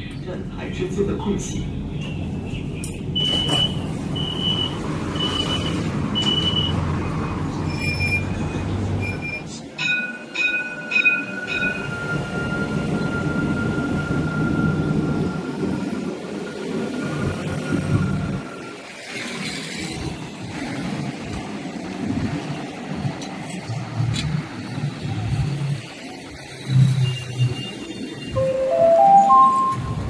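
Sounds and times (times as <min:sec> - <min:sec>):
tram running rumble: 0:00.0 - 0:30.0
high wheel squeal whine: 0:07.5 - 0:09.6, 0:11.3 - 0:19.0.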